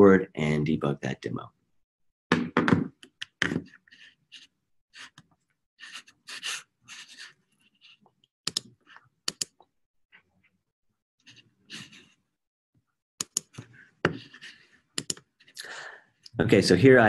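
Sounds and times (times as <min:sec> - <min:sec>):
keyboard and mouse clicks: 0:08.5 - 0:09.7, 0:13.2 - 0:13.7, 0:15.0 - 0:15.3
breathing close to microphone: 0:15.5 - 0:16.2.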